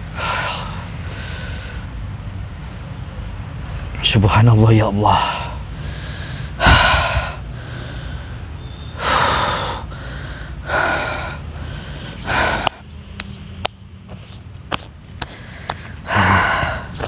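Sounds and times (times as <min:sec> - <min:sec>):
man gasping breaths: 0:00.0 - 0:02.0, 0:05.2 - 0:12.9, 0:15.3 - 0:17.0.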